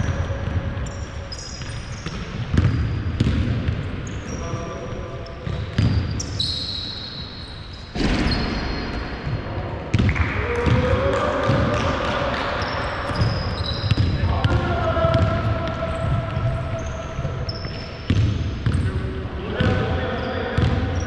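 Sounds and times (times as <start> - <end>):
sneakers squeaking: 0.0 - 10.9, 11.5 - 21.0
basketball bouncing on hardwood: 2.5 - 3.6.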